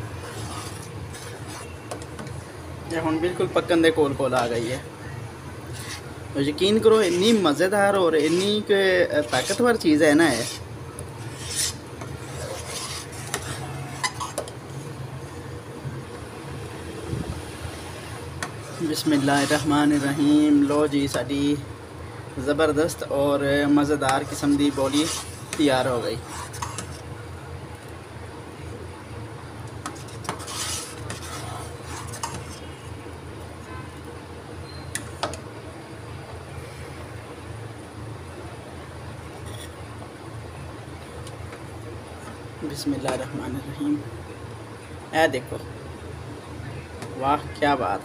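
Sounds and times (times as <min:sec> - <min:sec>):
steady low hum: 0:00.0 - 0:48.0
metal ladle scraping saucepan: 0:08.2 - 0:10.6, 0:11.2 - 0:14.5, 0:24.2 - 0:25.6, 0:30.0 - 0:32.8.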